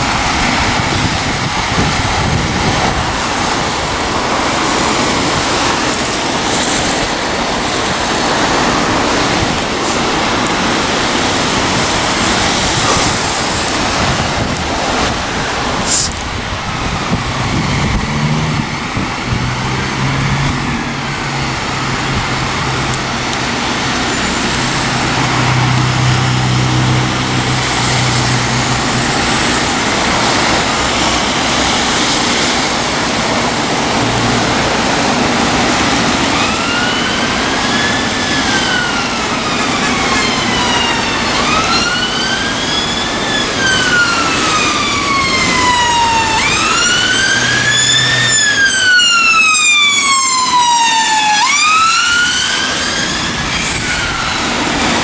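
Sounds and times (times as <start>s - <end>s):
fire engine running: 0.0s - 55.0s
wailing siren: 16.6s - 55.0s.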